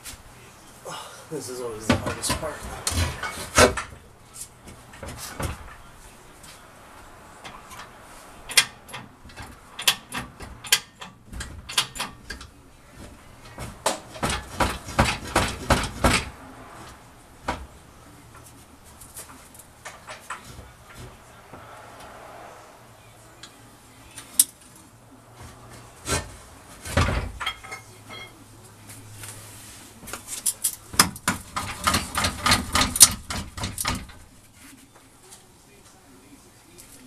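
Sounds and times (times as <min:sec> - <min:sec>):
knocks and clicks of hand work: 0:13.6 - 0:16.3, 0:30.9 - 0:34.2.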